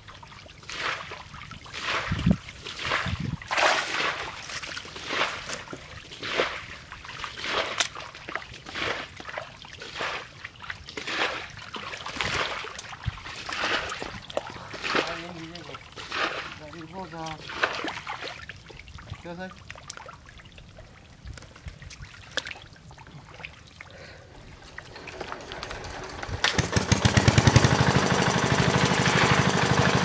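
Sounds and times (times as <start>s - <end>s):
hands splashing in mud: 1.8s - 6.7s, 7.3s - 9.4s.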